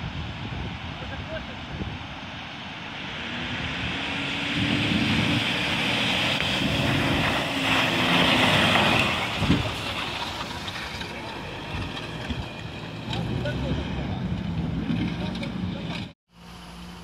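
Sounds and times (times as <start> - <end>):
water splashing from wheels: 2.8 - 16.0.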